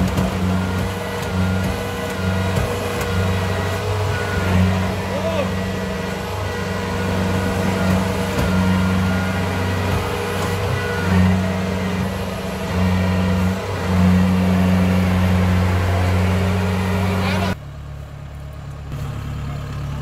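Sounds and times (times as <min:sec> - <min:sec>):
diesel engine droning under load: 0:00.0 - 0:20.0.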